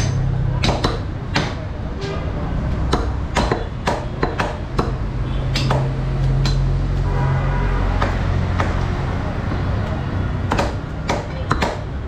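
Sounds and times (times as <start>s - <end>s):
cleavers chopping meat on wood: 0.5s - 1.7s, 2.9s - 6.7s, 8.0s - 12.0s.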